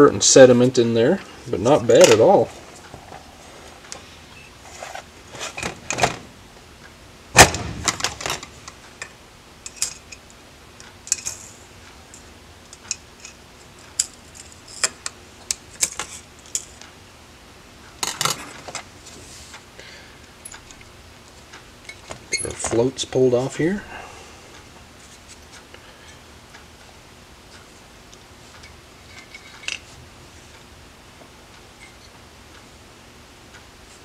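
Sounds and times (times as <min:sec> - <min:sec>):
loud metal clunk: 0:07.4 - 0:08.5
metal parts clicking and clinking: 0:11.0 - 0:11.5, 0:28.6 - 0:29.9.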